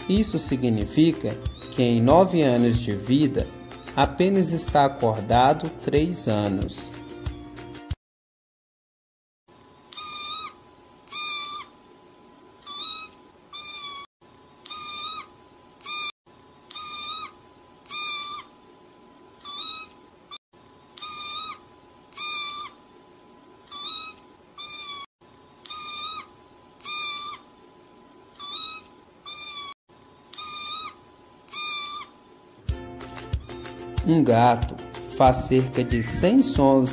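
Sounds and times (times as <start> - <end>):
kitten mewing: 1.4 - 1.8, 3.4 - 4.0, 6.9 - 7.4, 9.9 - 11.7, 12.6 - 16.1, 16.7 - 18.5, 19.4 - 20.0, 21.0 - 22.8, 23.7 - 27.5, 28.4 - 32.2.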